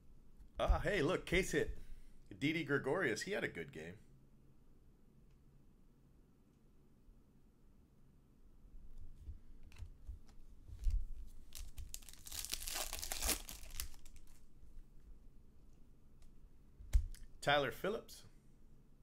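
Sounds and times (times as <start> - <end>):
wrapper tearing and crinkling: 11.4 - 14.4.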